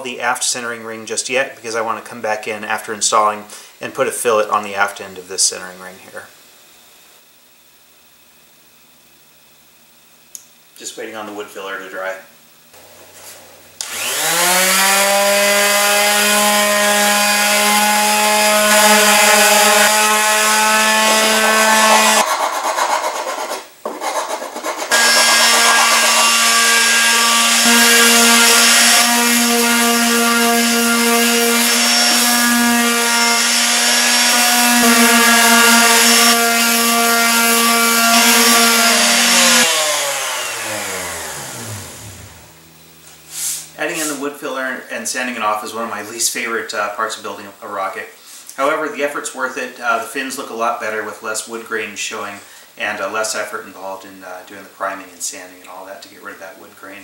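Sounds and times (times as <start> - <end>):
electric palm sander sanding wood: 12.8 - 44.4.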